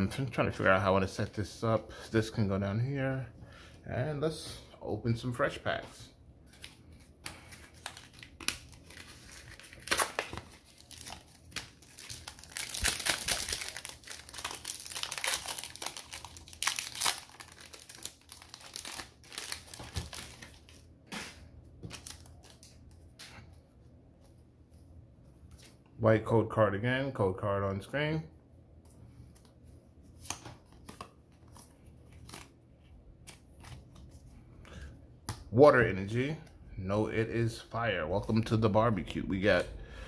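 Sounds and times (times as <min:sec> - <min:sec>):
foil wrapper crinkling and tearing: 0:07.6 - 0:20.9.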